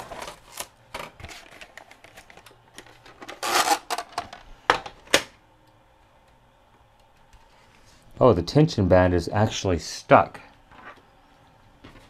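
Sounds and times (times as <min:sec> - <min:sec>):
rustling scrape: 0:03.2 - 0:03.9.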